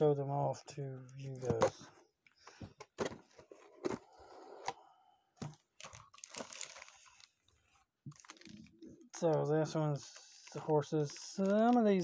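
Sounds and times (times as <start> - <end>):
cardboard packaging rustling: 5.4 - 12.0
plastic bag crinkling: 5.4 - 12.0.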